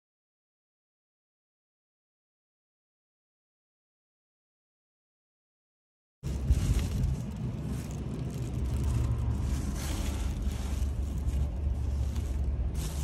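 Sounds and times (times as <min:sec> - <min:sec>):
car engine rumbling: 0:06.2 - 0:13.0
plastic bags rustling: 0:06.2 - 0:13.0.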